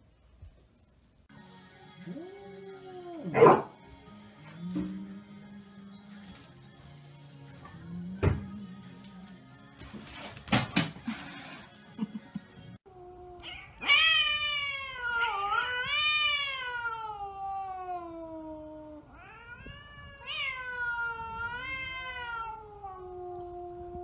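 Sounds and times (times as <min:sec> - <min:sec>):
cat yowling: 0:13.0 - 0:24.0.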